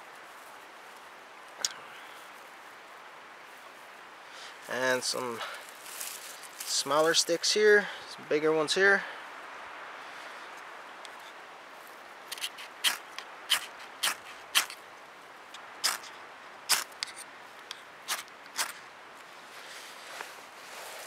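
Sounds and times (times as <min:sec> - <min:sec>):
knife scraping a ferro rod: 0:12.3 - 0:14.8, 0:18.1 - 0:18.8.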